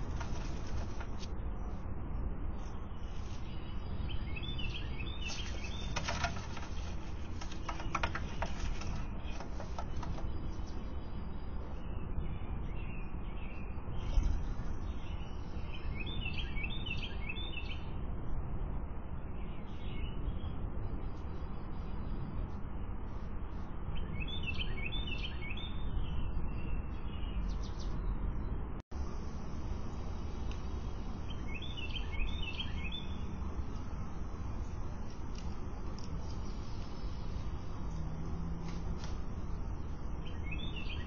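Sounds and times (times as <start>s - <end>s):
soft clicks and rustles: 0.0s - 1.4s, 5.2s - 10.8s, 34.9s - 39.5s
low background rumble: 0.0s - 17.5s, 26.0s - 41.0s
birds chirping: 0.0s - 18.0s, 23.1s - 41.0s.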